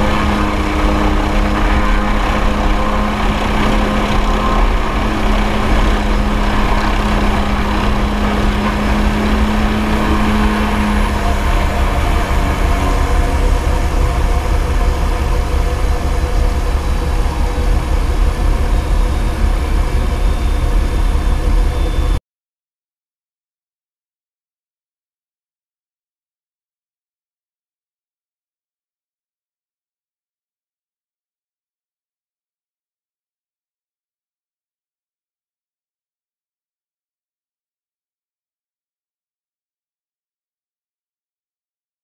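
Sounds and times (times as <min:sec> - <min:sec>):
helicopter turbine and rotor: 0:00.0 - 0:22.2
steady hum: 0:00.0 - 0:22.2.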